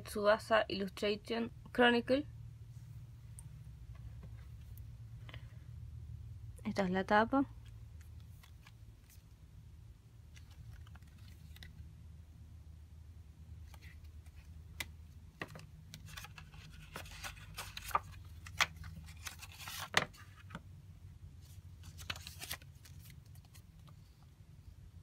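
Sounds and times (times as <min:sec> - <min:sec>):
steady low hum: 0:00.0 - 0:19.4
paper rustling: 0:10.3 - 0:11.8, 0:15.4 - 0:20.6, 0:21.4 - 0:24.1.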